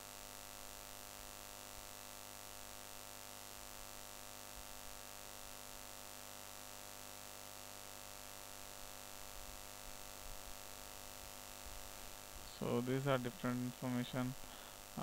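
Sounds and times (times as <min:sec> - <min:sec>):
electrical hum with hiss: 0:00.0 - 0:15.0.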